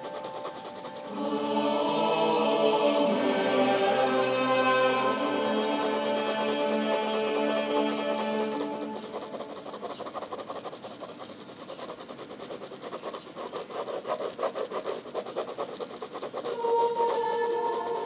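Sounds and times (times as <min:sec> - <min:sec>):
pen scratching on paper: 0:00.0 - 0:18.0
background music: 0:00.2 - 0:09.4, 0:16.6 - 0:18.0.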